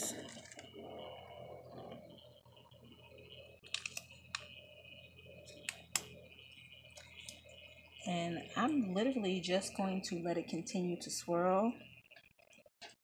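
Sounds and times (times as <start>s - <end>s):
sharp clicks: 3.6s - 4.5s.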